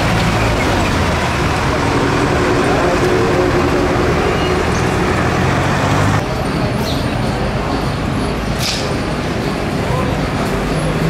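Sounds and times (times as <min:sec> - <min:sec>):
vehicle engine running close by: 0:00.0 - 0:06.2
road traffic: 0:00.0 - 0:11.0.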